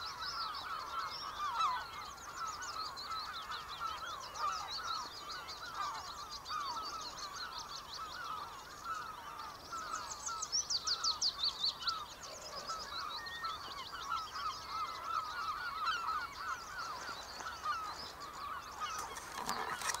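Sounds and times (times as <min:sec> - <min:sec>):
bird chorus: 0:00.0 - 0:20.0
handling rustle: 0:18.8 - 0:20.0.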